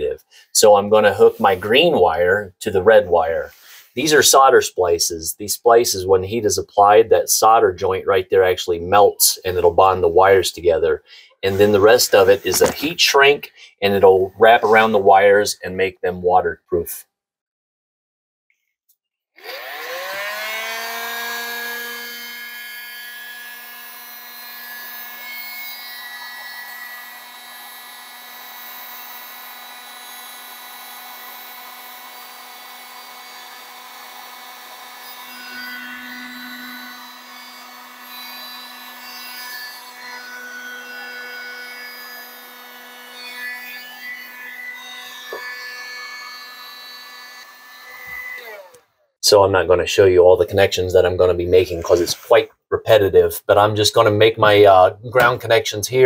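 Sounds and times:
heat gun fan whining: 19.4s - 48.9s.

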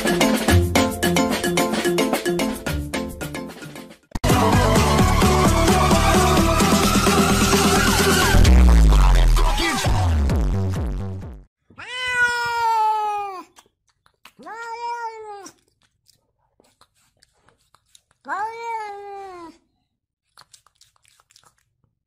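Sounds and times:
cat meowing: 11.7s - 13.6s, 14.4s - 15.6s, 18.2s - 19.6s.

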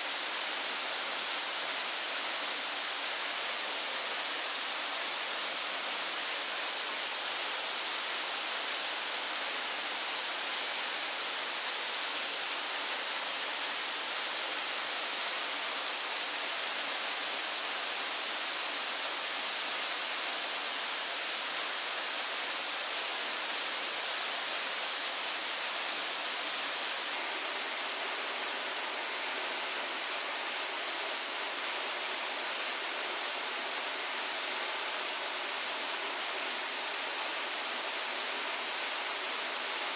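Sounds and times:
rushing water: 0.0s - 39.9s.

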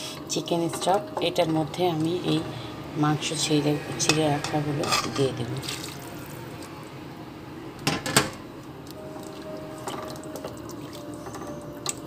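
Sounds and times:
stock boiling in a pot: 7.8s - 12.0s.

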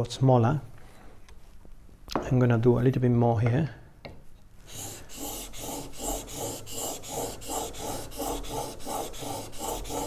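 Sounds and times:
chisel scraping on whetstone: 4.7s - 10.0s.

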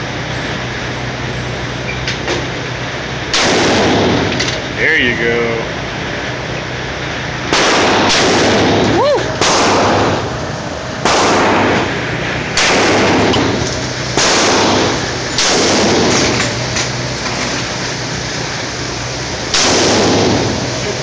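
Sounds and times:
rifle shots echoing indoors: 3.3s - 4.2s, 7.5s - 8.8s, 9.4s - 10.2s, 11.0s - 11.9s, 12.6s - 13.4s, 14.2s - 16.3s, 19.5s - 20.5s.

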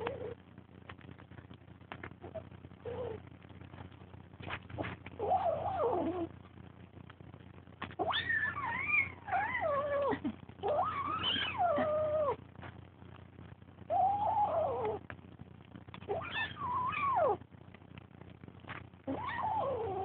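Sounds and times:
cat meowing: 16.1s - 17.4s, 19.1s - 20.0s.

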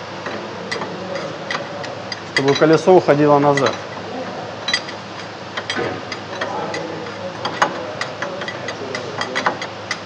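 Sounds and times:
workshop noise: 0.0s - 10.0s
wrench metallic clicks: 0.2s - 2.9s, 4.7s - 10.0s.

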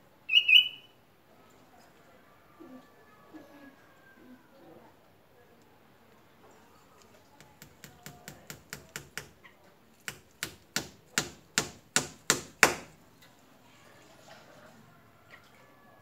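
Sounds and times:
hammer tapping a nail into wood: 7.4s - 9.4s, 10.1s - 13.0s.

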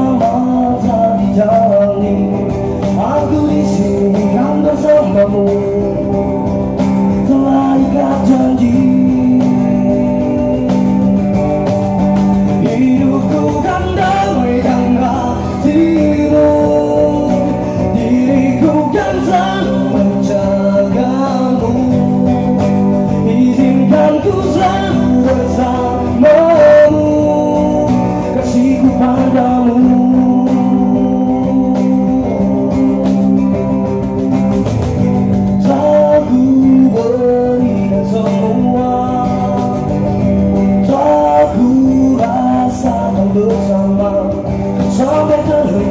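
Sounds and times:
acoustic guitar strumming: 0.0s - 45.9s
man singing: 0.0s - 45.9s.

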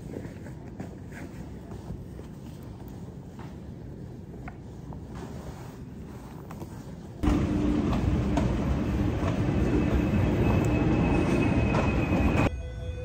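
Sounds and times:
heavy traffic rumble: 7.2s - 12.5s.

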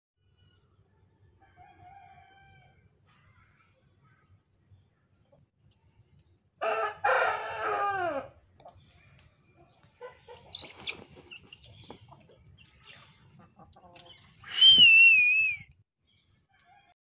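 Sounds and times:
rooster crowing: 1.4s - 2.8s, 6.6s - 8.3s
faint chicken calls: 1.4s - 3.2s, 6.6s - 15.0s, 16.5s - 17.0s.

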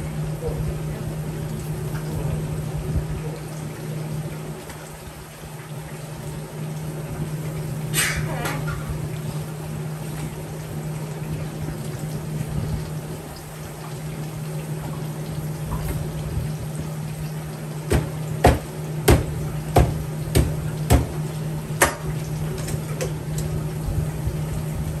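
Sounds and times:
cleaver chopping on wooden board: 17.9s - 21.2s.

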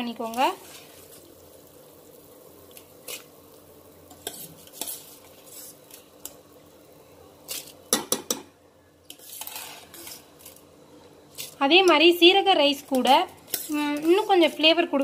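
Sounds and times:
utensils clinking on steel pot: 12.8s - 14.6s.

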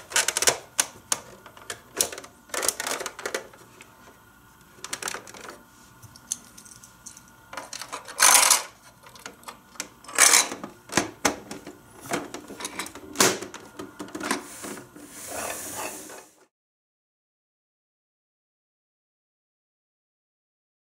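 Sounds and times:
toy truck scraping across carpet: 15.1s - 16.4s.

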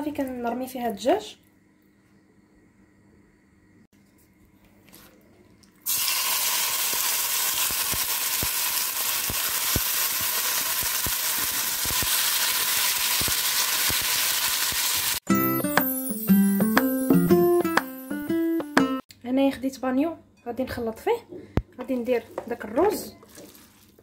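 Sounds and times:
chicken sizzling in hot oil: 5.8s - 15.2s.

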